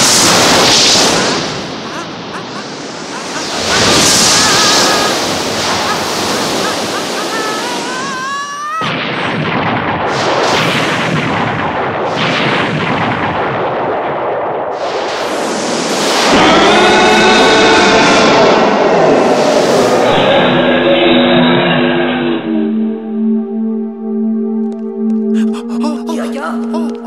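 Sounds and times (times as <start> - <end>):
explosion: 0.0 - 7.9, 8.8 - 22.5
cartoon jet thrust rushing: 0.0 - 9.4
wavering rising high cry: 1.0 - 8.9
fire burning: 8.8 - 20.0.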